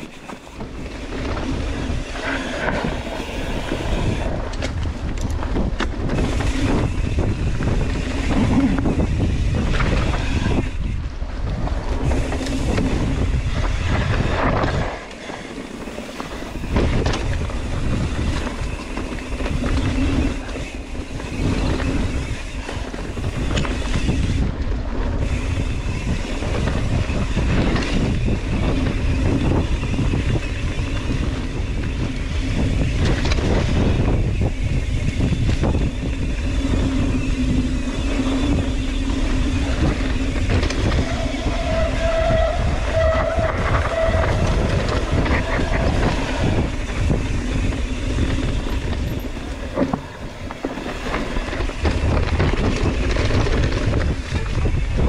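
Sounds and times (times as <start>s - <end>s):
mountain bike rattling and knocking: 0.0s - 55.0s
wind rushing over microphone: 0.0s - 55.0s.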